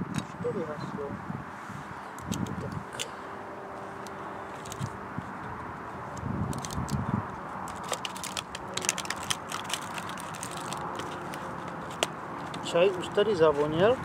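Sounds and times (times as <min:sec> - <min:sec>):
distant motorway traffic: 0:00.0 - 0:14.0
wind: 0:00.0 - 0:14.0
packet crinkling and clicking: 0:04.6 - 0:04.9, 0:06.2 - 0:12.6.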